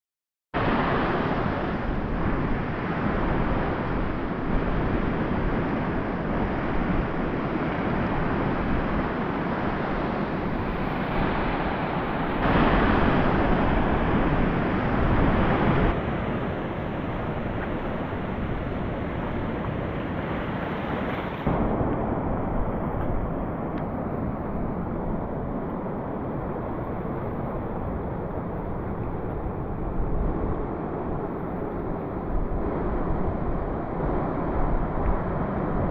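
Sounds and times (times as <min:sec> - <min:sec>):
sea surf: 0:00.6 - 0:35.9
wind rumbling on microphone: 0:00.6 - 0:35.9.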